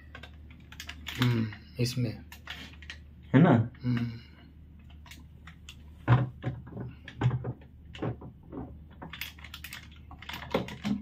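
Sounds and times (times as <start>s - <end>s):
plastic parts knocking and clicking: 0.0s - 1.6s, 4.8s - 11.0s.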